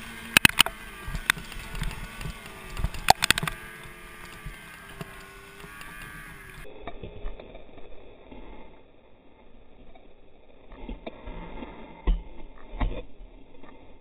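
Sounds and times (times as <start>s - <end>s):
snowmobile engine running: 0.0s - 9.9s.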